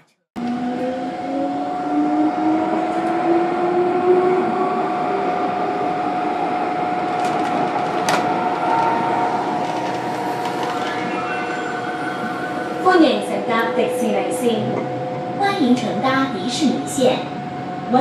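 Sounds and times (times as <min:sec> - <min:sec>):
train motor whine: 0:00.4 - 0:15.4
steady tone: 0:00.4 - 0:18.0
train wheels rumbling: 0:06.8 - 0:18.0.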